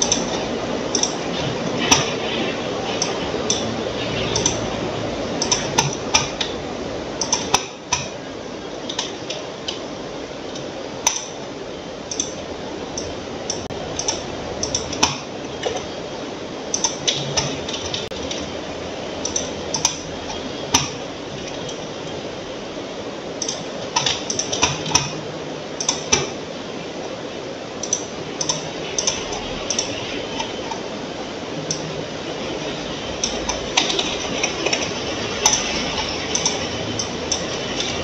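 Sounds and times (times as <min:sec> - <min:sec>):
steady background hiss: 0:00.0 - 0:38.0
computer mouse clicking: 0:12.1 - 0:12.4, 0:16.7 - 0:18.4, 0:19.2 - 0:20.0, 0:27.8 - 0:30.8.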